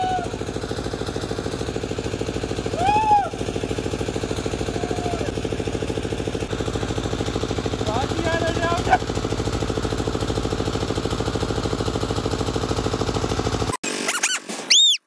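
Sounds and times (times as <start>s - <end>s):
person crying out: 0.0s - 0.3s, 2.8s - 3.4s, 4.7s - 5.3s
engine chugging: 0.0s - 14.9s.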